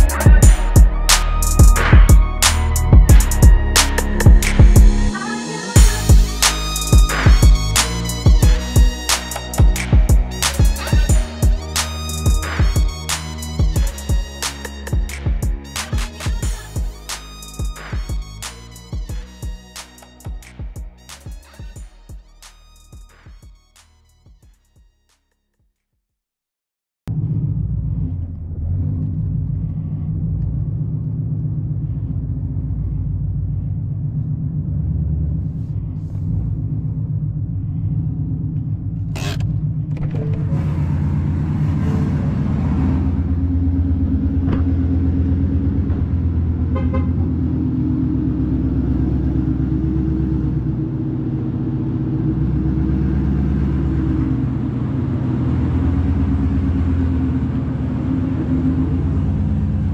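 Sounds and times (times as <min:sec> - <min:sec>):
car engine idling: 0:00.0 - 0:05.2, 0:27.1 - 0:59.9.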